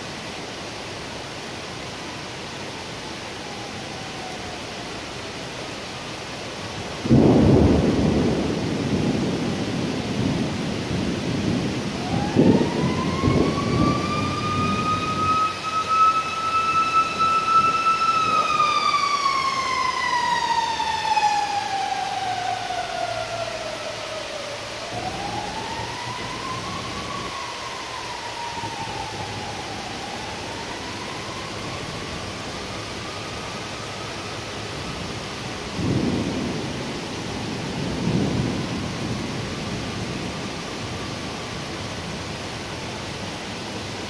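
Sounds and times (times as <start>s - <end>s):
rain hiss: 0.0s - 44.0s
thunder rumbling: 6.8s - 42.2s
siren winding down: 12.0s - 34.5s.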